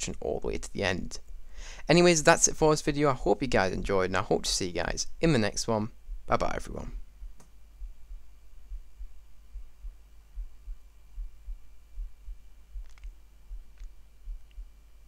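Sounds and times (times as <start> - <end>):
faint clicks: 12.8 - 14.6.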